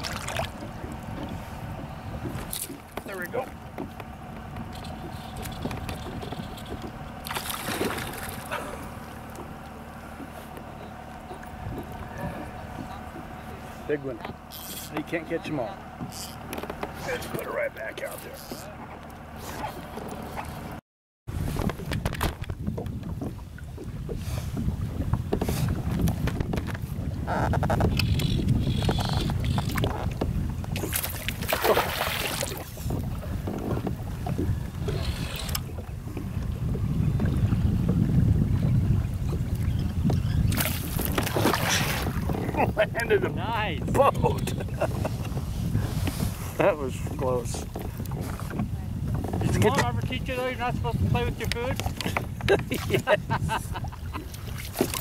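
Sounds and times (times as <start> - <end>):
wind on microphone: 0.0 - 2.9, 10.8 - 13.7, 21.3 - 55.0
water lapping against kayak hull: 0.0 - 55.0.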